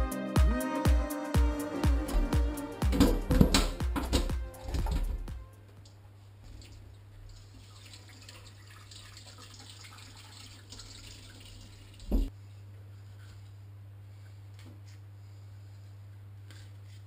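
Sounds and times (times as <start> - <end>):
water dripping: 6.5 - 12.3.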